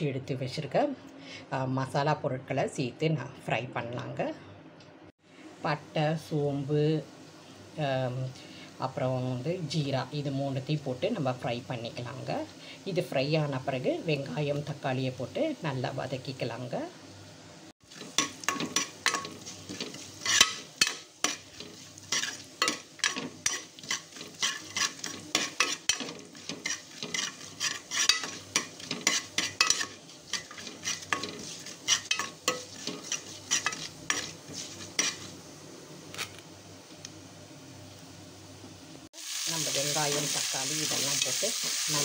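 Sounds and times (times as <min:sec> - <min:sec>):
spices sizzling in hot oil: 0:05.6 - 0:42.0
ladle scraping a pot: 0:17.9 - 0:35.3.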